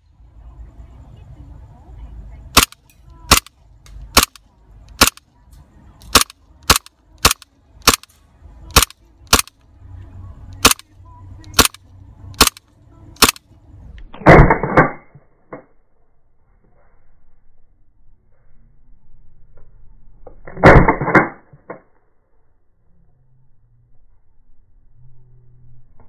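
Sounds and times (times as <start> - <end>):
airsoft pistol shots: 2.5 - 3.5, 4.1 - 4.4, 5.0 - 5.2, 6.0 - 8.1, 8.7 - 9.5, 10.6 - 10.9, 11.5 - 11.8, 12.4 - 12.6, 13.2 - 13.4, 14.2 - 15.1, 20.5 - 21.5.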